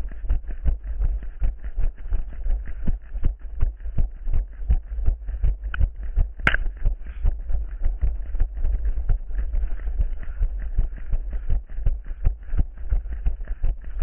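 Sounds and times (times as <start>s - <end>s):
constant low rumble: 0.0s - 14.0s
running footsteps: 4.5s - 14.0s
sharp click: 6.4s - 6.8s.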